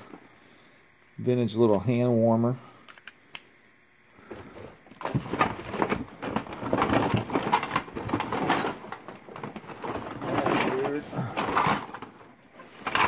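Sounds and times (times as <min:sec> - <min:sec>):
rummaging through cardboard box: 0:04.3 - 0:13.0.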